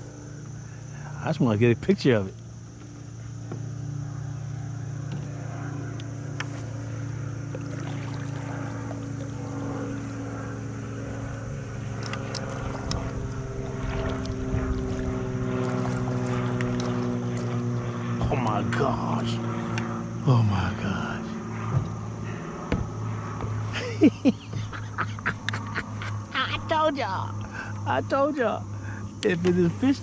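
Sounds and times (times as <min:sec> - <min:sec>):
trolling motor humming: 0:00.0 - 0:30.0
water noise: 0:06.4 - 0:20.6.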